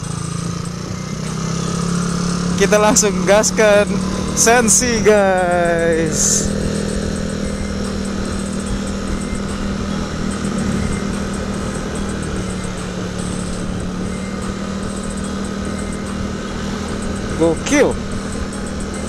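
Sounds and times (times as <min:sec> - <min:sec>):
motorcycle engine hum: 0:00.0 - 0:19.0
wind and road noise: 0:00.0 - 0:19.0.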